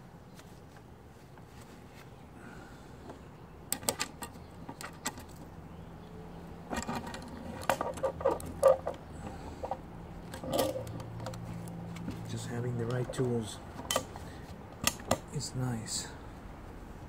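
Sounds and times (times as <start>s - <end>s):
small metal parts clinking: 9.6s - 11.4s.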